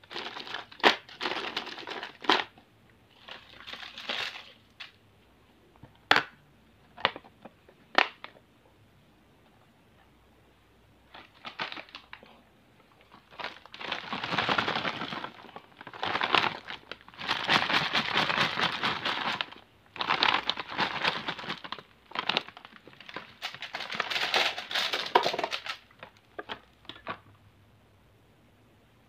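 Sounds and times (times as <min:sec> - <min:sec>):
plastic bag crinkling: 0:00.0 - 0:05.0, 0:11.1 - 0:12.3, 0:13.0 - 0:26.5
wrapped sweets rattling: 0:00.0 - 0:05.0, 0:11.1 - 0:12.4, 0:13.0 - 0:27.0.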